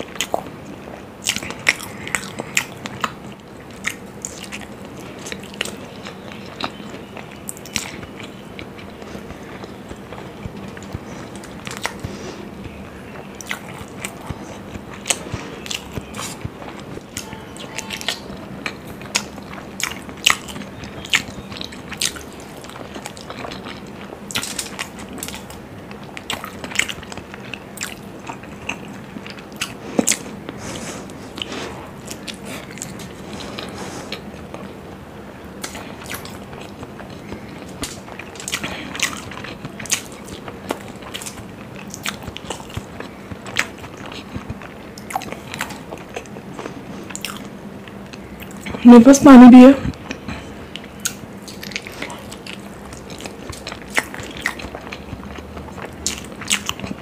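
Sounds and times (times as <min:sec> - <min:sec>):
close-up chewing: 0:00.0 - 0:48.8, 0:49.8 - 0:57.0
mouth clicks and smacks: 0:35.6 - 0:48.8.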